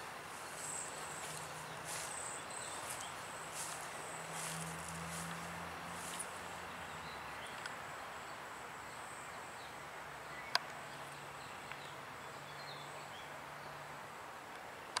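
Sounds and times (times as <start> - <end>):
steady hiss: 0.0 - 6.6
high insect drone: 0.0 - 9.7
bird chirps: 0.4 - 4.6.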